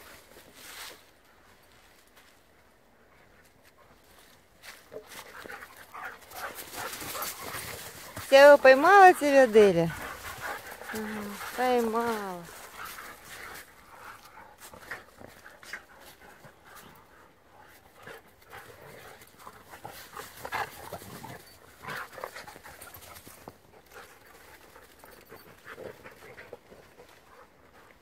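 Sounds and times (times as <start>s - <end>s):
scuffling in dry leaves: 0.1s - 2.3s, 4.1s - 14.8s
dogs play-fighting noises: 3.0s - 28.0s.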